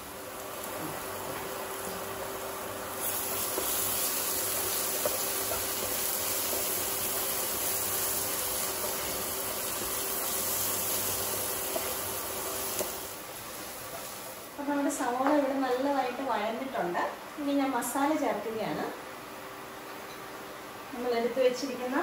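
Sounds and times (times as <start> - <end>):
onions sizzling in oil: 0.0 - 15.6.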